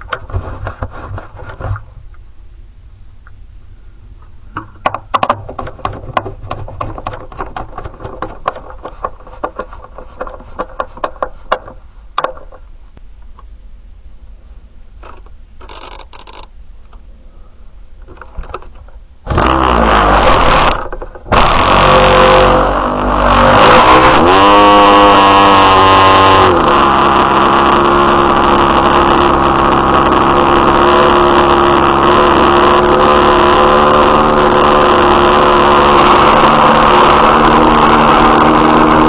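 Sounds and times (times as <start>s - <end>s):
clicks and knocks: 4.6s - 12.6s
model aircraft engine running: 19.3s - 39.0s
short whirs: 19.3s - 39.0s.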